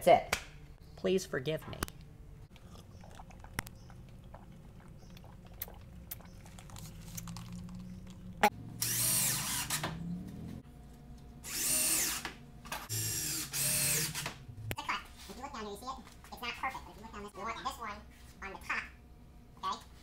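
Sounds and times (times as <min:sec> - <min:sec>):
drill driving screws into wood: 0:08.8 - 0:10.0, 0:11.4 - 0:12.3, 0:12.9 - 0:14.4.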